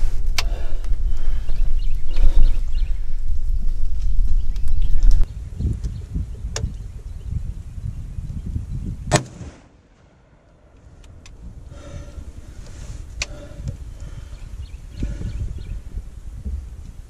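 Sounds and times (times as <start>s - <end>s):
low rumbling handling noise: 0.0s - 7.4s
rifle shot: 9.1s - 10.8s.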